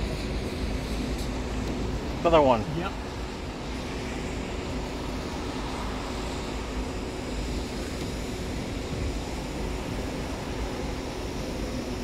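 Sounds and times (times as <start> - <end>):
faint steady hum: 0.0 - 12.0
rushing wind: 0.0 - 12.0.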